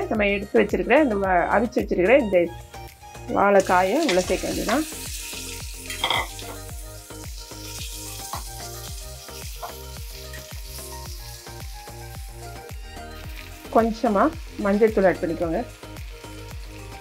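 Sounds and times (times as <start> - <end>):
soft background music with beat: 0.0 - 17.0
food sizzling in hot oil: 2.4 - 17.0
metal ladle scraping pan: 5.9 - 6.5.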